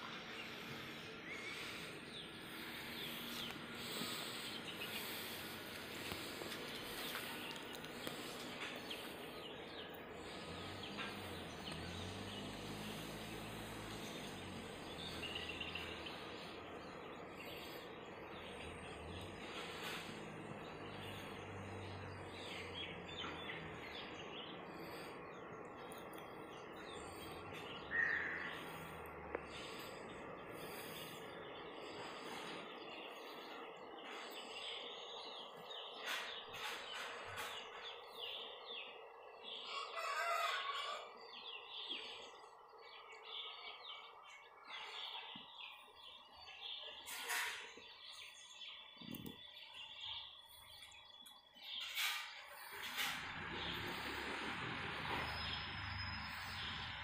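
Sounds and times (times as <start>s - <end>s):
steady background noise: 0.0s - 57.0s
bird chirps: 20.6s - 57.0s.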